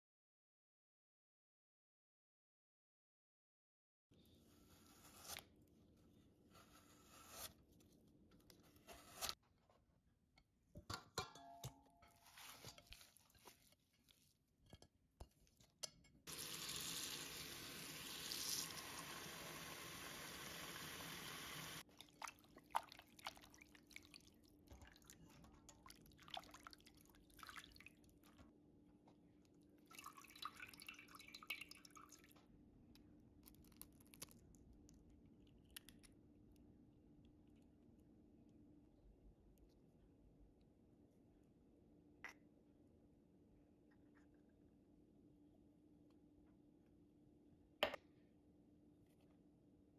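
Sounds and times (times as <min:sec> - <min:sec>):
water dripping into bowl: 0:29.9 - 0:32.3.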